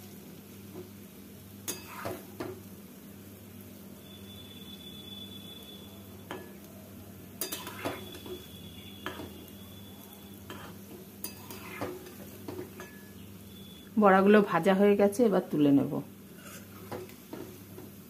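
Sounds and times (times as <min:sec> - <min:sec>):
deep-frying sizzle in oil: 0:00.0 - 0:18.0
metal spatula scraping pan: 0:01.7 - 0:02.2, 0:07.4 - 0:08.4, 0:10.5 - 0:13.1, 0:16.3 - 0:17.2.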